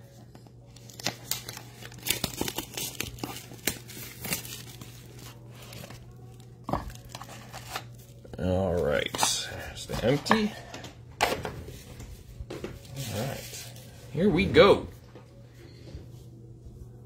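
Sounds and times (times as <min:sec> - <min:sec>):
plastic shrink-wrap crinkling and tearing: 0:00.6 - 0:09.2.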